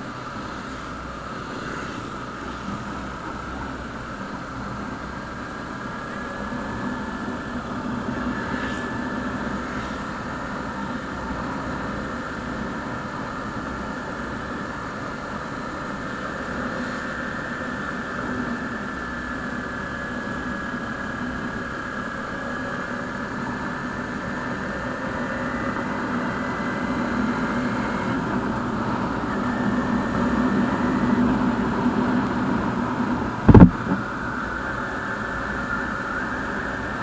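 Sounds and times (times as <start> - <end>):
wind and road noise: 0.0 - 37.0
loud low thump: 33.5 - 34.0
motorcycle engine running: 33.5 - 34.1.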